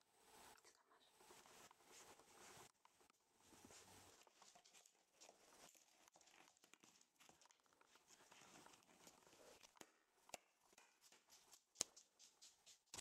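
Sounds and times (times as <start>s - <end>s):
light sharp clicks and taps: 4.2s - 13.0s.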